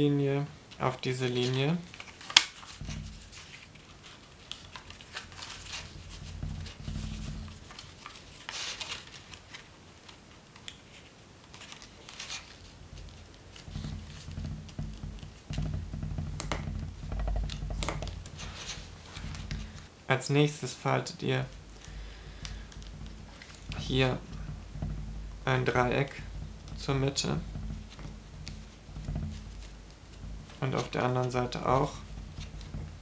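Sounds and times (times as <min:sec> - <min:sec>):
paper rustling and crinkling: 0:01.3 - 0:19.9
low rumble of hands pressing: 0:02.6 - 0:08.4, 0:12.6 - 0:20.0, 0:21.3 - 0:33.0.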